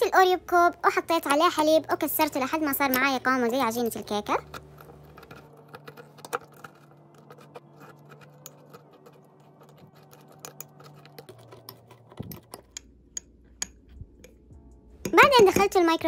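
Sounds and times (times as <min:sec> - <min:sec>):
metal spoon scraping ceramic mug: 0:04.4 - 0:14.4.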